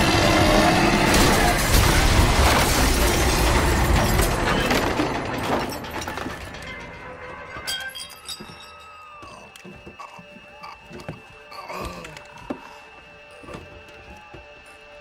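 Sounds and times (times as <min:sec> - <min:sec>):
crashing impacts: 0:00.9 - 0:07.2
debris clattering down: 0:01.0 - 0:09.0
glass shattering: 0:01.1 - 0:09.0.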